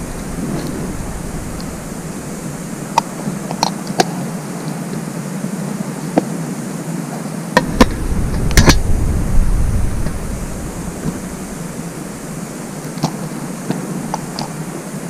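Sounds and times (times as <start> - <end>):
low rumble: 0.0 - 3.6, 7.6 - 14.6
outdoor noise haze: 0.0 - 15.0.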